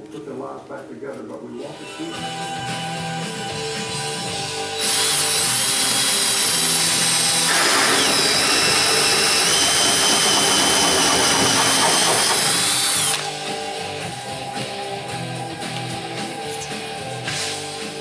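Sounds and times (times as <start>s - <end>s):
power drill hole saw cutting: 4.6s - 14.2s.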